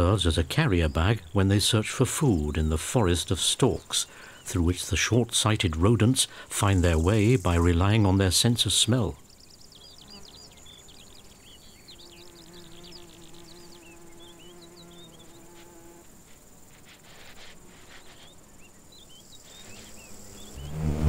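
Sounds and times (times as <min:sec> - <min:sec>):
small birds twittering: 0:00.0 - 0:20.9
high insect trill: 0:00.1 - 0:21.0
bee buzzing: 0:10.0 - 0:21.0.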